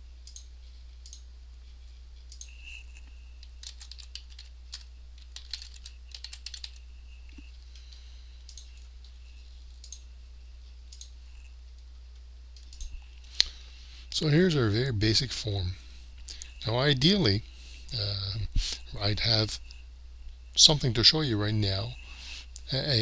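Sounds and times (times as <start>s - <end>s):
steady low hum: 0.0s - 23.0s
keyboard typing: 2.3s - 9.2s.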